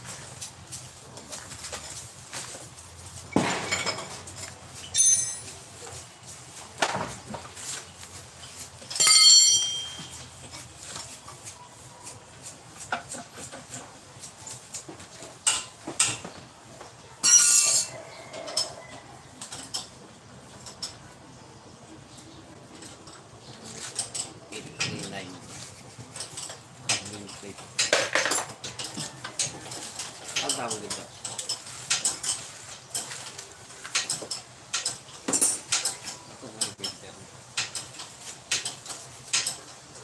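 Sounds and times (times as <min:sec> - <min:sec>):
metal hand tools clinking: 0:03.6 - 0:05.7, 0:08.4 - 0:10.7
loud ringing metallic clatter: 0:04.9 - 0:05.6, 0:09.0 - 0:10.2.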